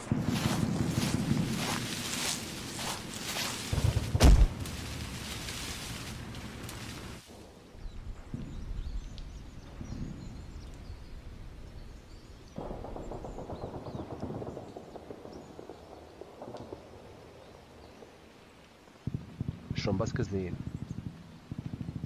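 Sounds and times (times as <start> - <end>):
heavy rumble: 0.0 - 7.2
rumble of distant fighting: 0.0 - 11.9, 19.0 - 22.0.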